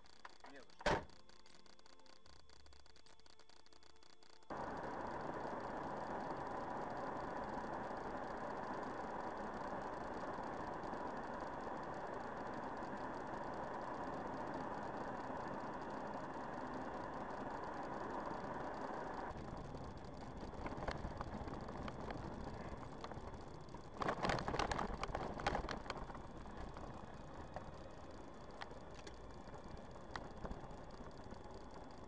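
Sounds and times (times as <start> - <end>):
road and engine noise in car: 4.5 - 32.0.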